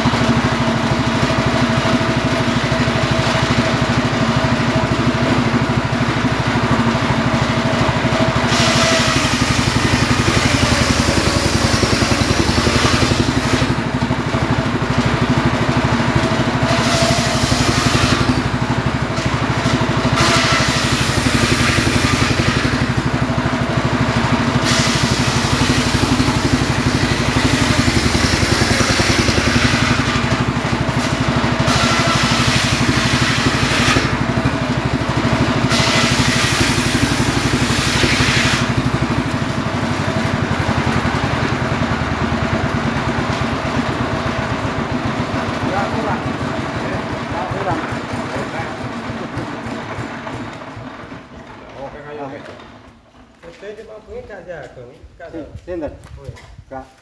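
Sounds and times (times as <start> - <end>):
engine humming: 0.0 - 51.5
circular saw ripping logs: 6.6 - 44.5.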